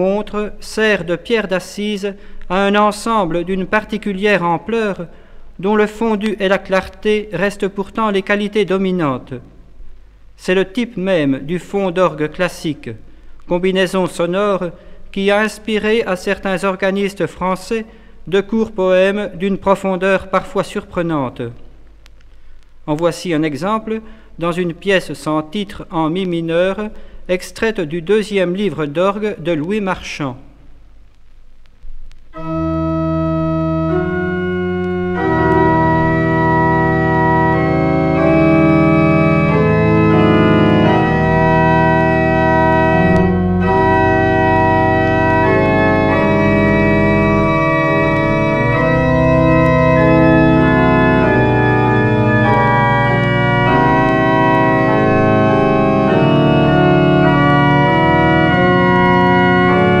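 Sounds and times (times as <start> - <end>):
pipe organ playing slow chords: 32.4 - 60.0.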